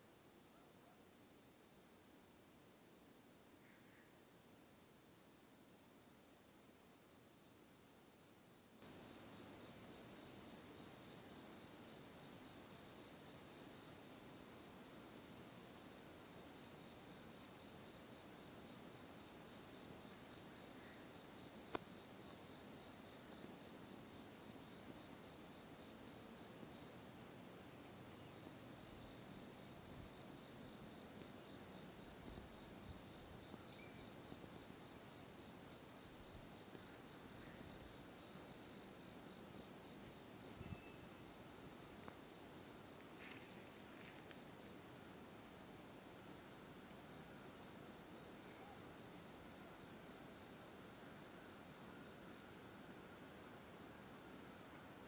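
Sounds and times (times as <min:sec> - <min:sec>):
insect chorus trilling: 0:03.4 - 0:55.0
faint chirps: 0:40.5 - 0:41.2.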